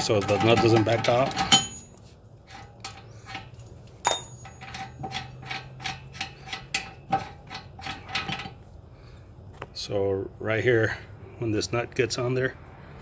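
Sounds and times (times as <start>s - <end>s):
steel tool scraping metal nut: 0.0s - 8.6s
sharp metal clink: 4.0s - 5.8s.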